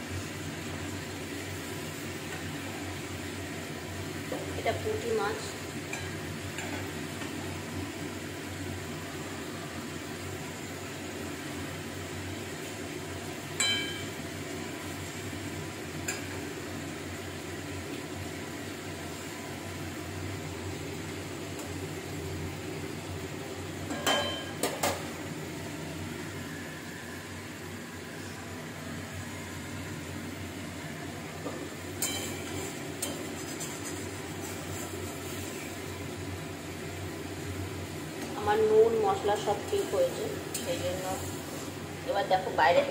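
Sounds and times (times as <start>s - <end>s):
spatula clinking against wok: 13.6s - 14.1s.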